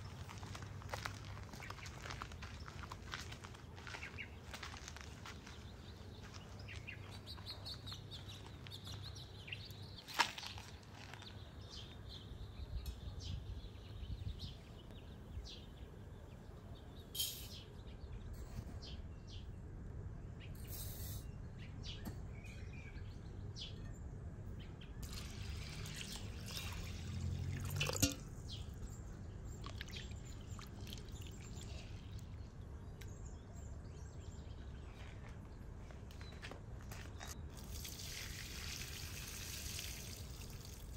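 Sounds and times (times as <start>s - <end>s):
birds chirping: 0.0s - 19.7s, 20.3s - 37.8s
water pouring: 25.0s - 28.3s, 29.6s - 31.8s, 37.6s - 40.9s.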